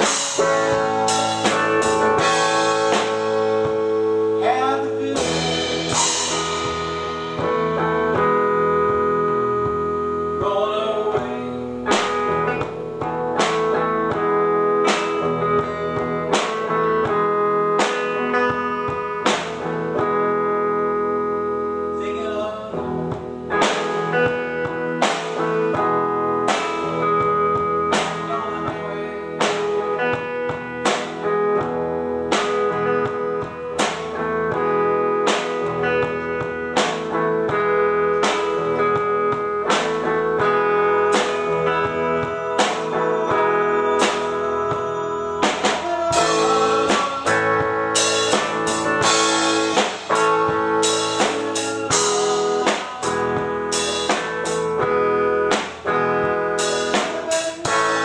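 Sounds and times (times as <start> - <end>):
drum kit beat: 0.0 - 58.0
electric guitars: 0.0 - 58.0
cymbals: 41.2 - 54.8.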